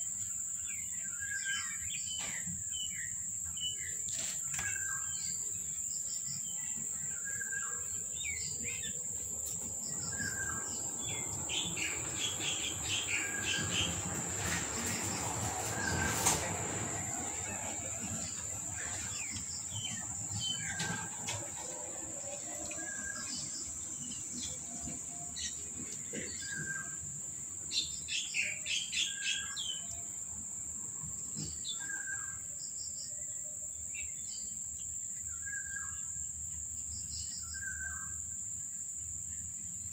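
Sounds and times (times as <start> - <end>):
small birds chirping: 0.2 - 16.2
high insect drone: 4.7 - 39.9.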